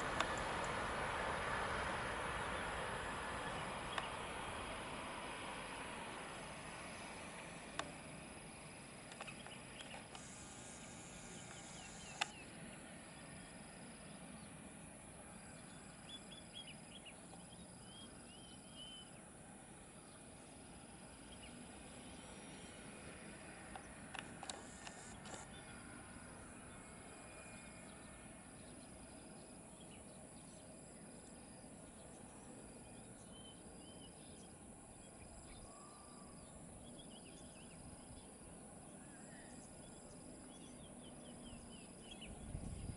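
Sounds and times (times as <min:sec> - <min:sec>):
insect calling in high pulses: 0:09.2 - 0:12.6
sharp clicks: 0:11.4 - 0:12.4, 0:23.7 - 0:25.5.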